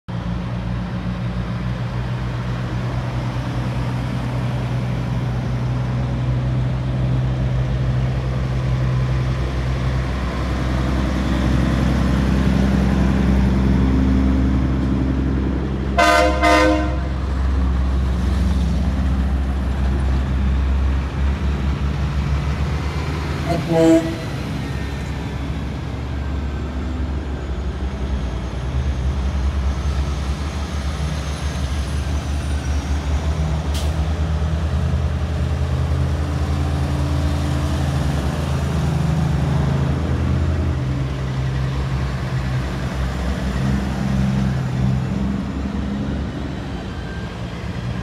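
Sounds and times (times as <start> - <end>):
diesel truck engines rumbling: 0.1 - 48.0
truck air horn blasts: 16.0 - 17.2, 23.4 - 24.5.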